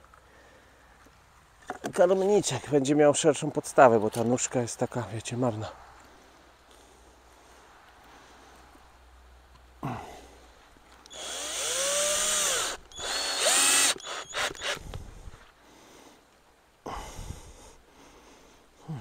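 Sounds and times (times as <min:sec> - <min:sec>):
power drill driving screws: 0:11.1 - 0:15.0.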